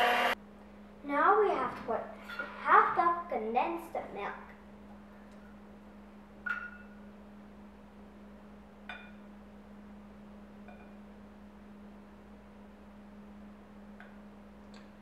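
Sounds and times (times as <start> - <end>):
steady low hum: 3.1 - 15.0.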